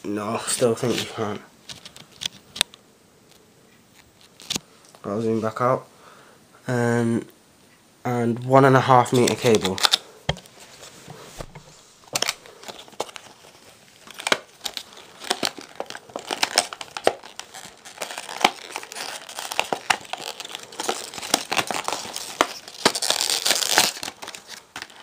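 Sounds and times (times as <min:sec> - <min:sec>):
cardboard box clicks and crinkling: 0:12.1 - 0:25.0.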